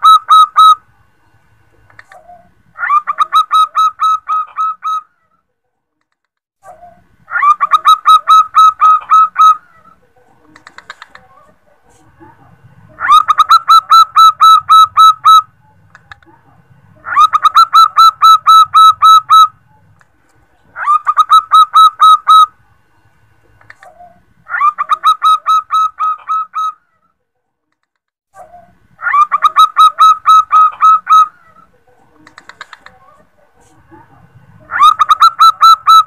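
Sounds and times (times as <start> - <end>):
dove cooing: 0.0 - 0.8, 2.0 - 5.1, 6.8 - 12.0, 12.9 - 20.0, 20.7 - 22.6, 23.6 - 26.8, 28.4 - 34.0, 34.6 - 36.0.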